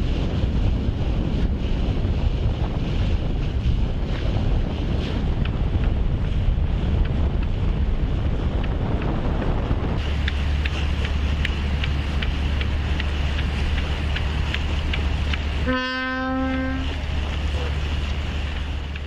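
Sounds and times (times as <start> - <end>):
wind rumbling on microphone: 0.0 - 19.0
light ticks: 8.6 - 9.1, 10.2 - 15.5, 18.1 - 19.0
horn blast: 15.6 - 16.9.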